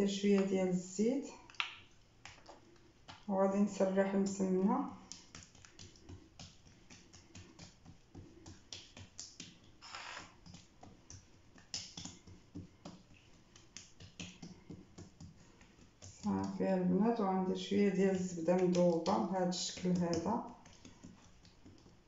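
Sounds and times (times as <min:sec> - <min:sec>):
hand swishing over dough: 0:02.2 - 0:16.6
sticky clicks of dough pressed: 0:04.9 - 0:16.6.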